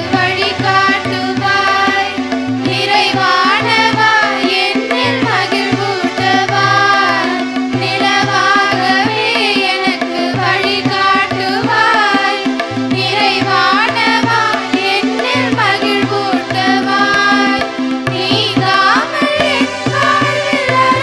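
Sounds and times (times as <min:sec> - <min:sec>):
girls' choir singing: 0:00.0 - 0:21.0
steady held drone: 0:00.0 - 0:21.0.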